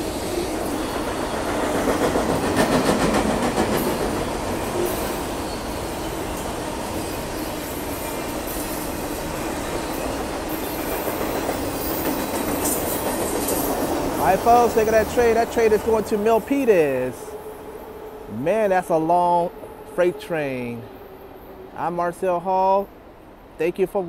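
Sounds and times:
freight train rolling past: 0:00.0 - 0:24.0.

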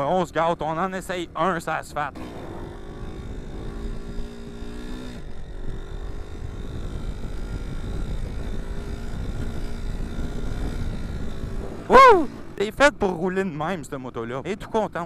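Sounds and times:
motorcycle engine pulling: 0:00.0 - 0:13.1
wind noise: 0:02.4 - 0:13.0.

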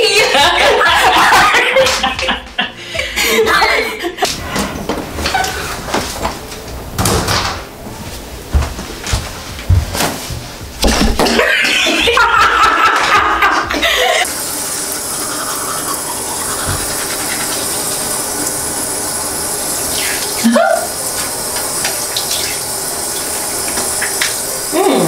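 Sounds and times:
tap water running into sink: 0:11.7 - 0:25.0.

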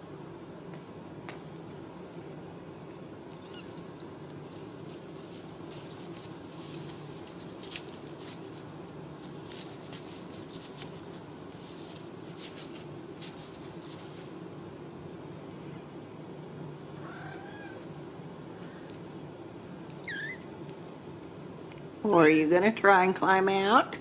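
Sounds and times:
steady low hum: 0:00.0 - 0:24.0
claws rustling on straw toys: 0:04.3 - 0:14.4.

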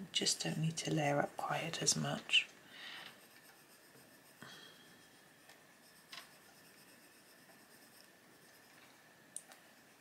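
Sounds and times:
pencil scratching on paper: 0:03.1 - 0:08.8.

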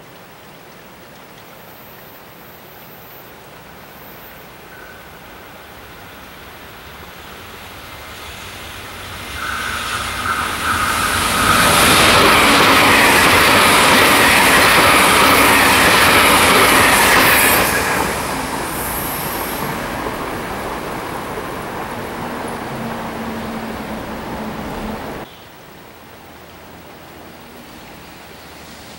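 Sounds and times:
train wheel and rail rush: 0:02.2 - 0:25.3, 0:26.3 - 0:28.9
electric train whine: 0:05.1 - 0:25.2.

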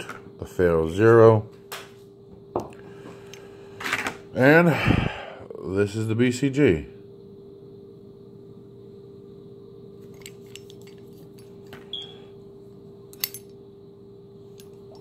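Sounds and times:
steady hum: 0:00.0 - 0:15.0
metal part clicking and rattling: 0:10.1 - 0:11.5.

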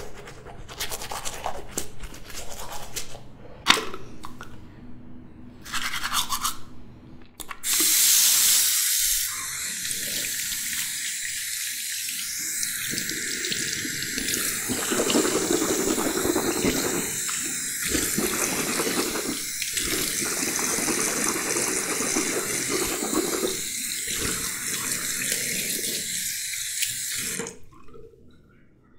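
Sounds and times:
toothbrush scrubbing: 0:00.0 - 0:03.2, 0:12.2 - 0:27.5
tap running into basin: 0:10.3 - 0:25.2.

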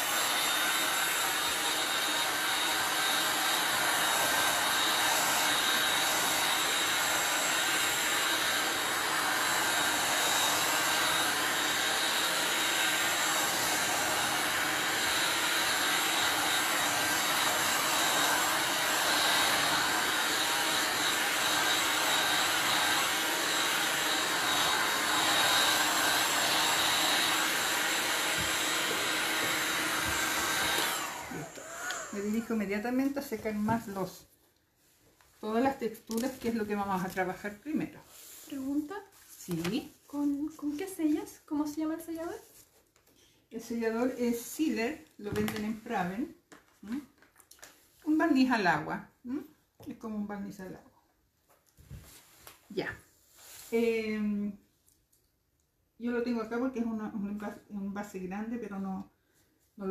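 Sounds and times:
heat gun blowing hiss: 0:00.0 - 0:32.5.

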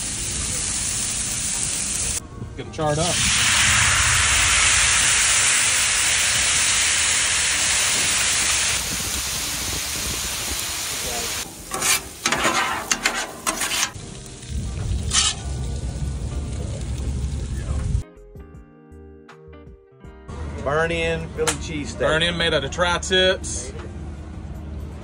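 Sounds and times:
meat sizzling on a griddle: 0:00.0 - 0:02.2, 0:03.1 - 0:18.0
low rumble: 0:03.2 - 0:06.1, 0:14.0 - 0:18.0.

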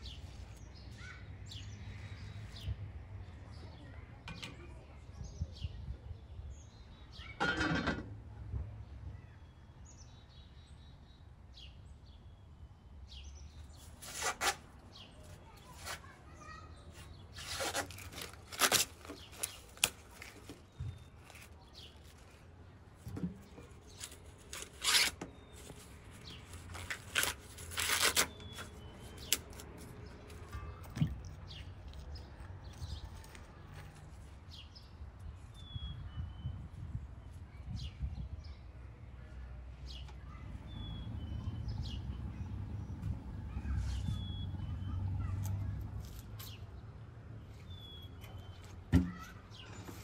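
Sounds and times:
corn husks tearing: 0:13.9 - 0:14.6, 0:16.9 - 0:22.4, 0:23.7 - 0:34.4
birds chirping faintly: 0:14.8 - 0:46.8.

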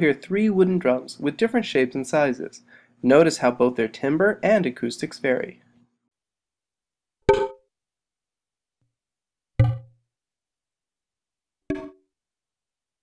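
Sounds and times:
synthesized wooden drum hits: 0:07.3 - 0:07.6, 0:09.6 - 0:10.0, 0:11.7 - 0:12.0.

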